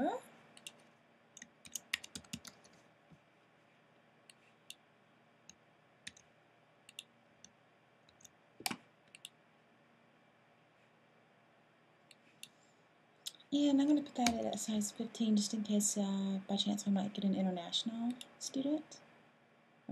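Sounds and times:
computer keyboard typing: 1.4s - 2.8s, 6.0s - 6.2s, 6.9s - 7.1s.

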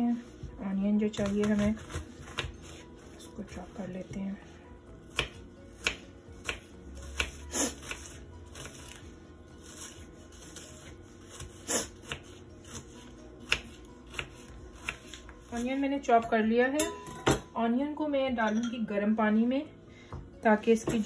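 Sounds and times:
onion being cut: 1.2s - 3.0s, 5.0s - 15.8s.

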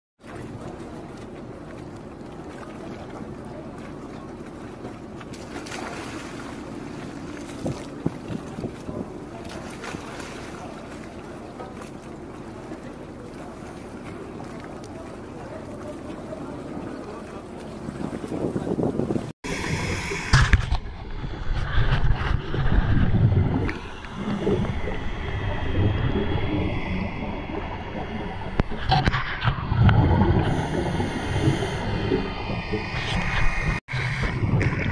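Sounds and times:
boat engine rumble: 0.2s - 34.9s
wind: 0.2s - 34.9s
water splashing hiss: 19.5s - 20.7s, 30.4s - 33.8s.

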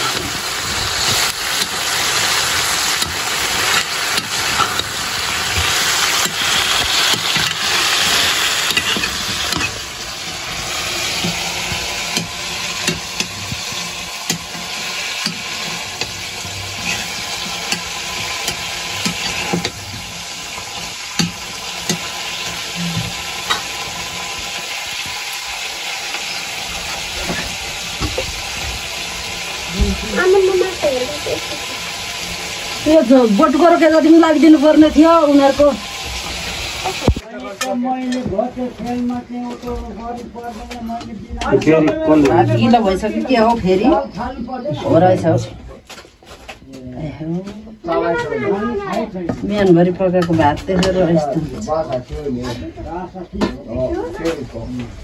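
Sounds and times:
metal ladle scraping a wok: 0.0s - 24.0s
meat and onions sizzling in a wok: 0.0s - 47.2s, 47.8s - 54.8s.

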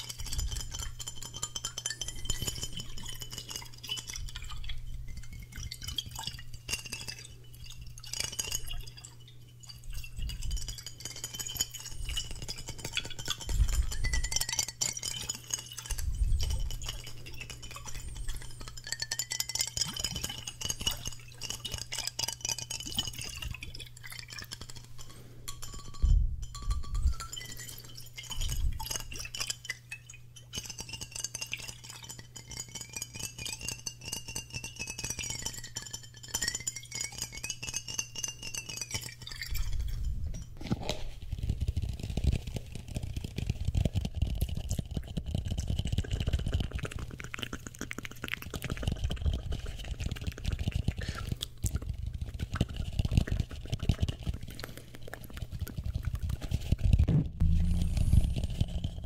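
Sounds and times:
fingers tapping glass bottle: 0.0s - 59.0s
tapping and rubbing on bowl: 0.0s - 59.0s
thin wavering ringing tone: 0.3s - 21.6s, 25.5s - 28.8s, 57.4s - 59.0s.

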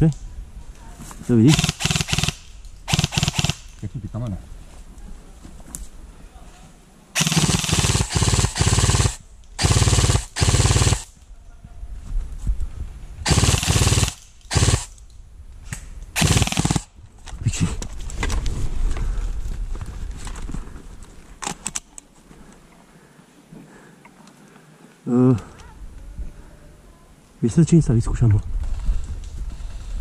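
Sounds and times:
airsoft gun firing bursts: 1.4s - 3.8s, 7.2s - 11.1s, 13.2s - 14.9s, 16.2s - 16.9s.

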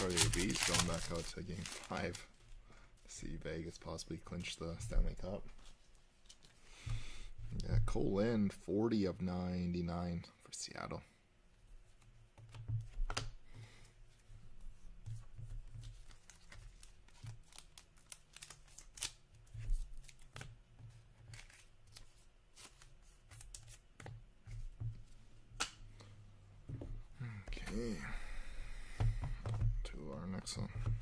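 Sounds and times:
trading cards clicking and rustling: 0.0s - 2.2s, 15.1s - 19.2s.

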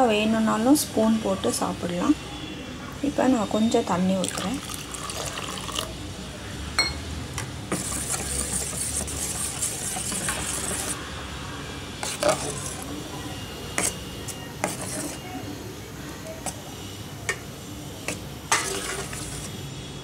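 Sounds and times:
spoon clinking on metal: 6.8s - 7.0s
spoon stirring thick porridge: 7.7s - 11.0s, 12.0s - 12.9s, 13.7s - 15.3s, 17.3s - 19.6s.

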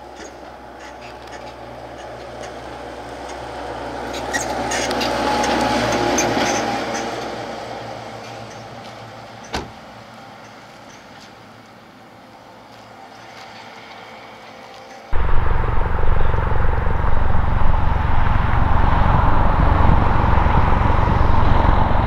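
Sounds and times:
diesel vehicle driving past: 15.2s - 22.0s.

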